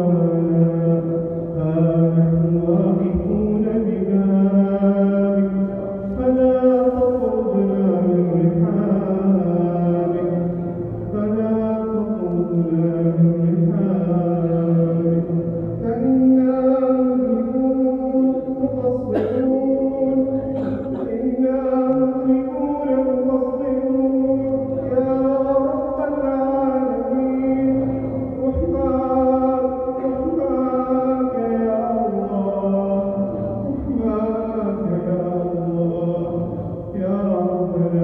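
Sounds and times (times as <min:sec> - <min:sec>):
man chanting melodically: 0:00.0 - 0:38.0.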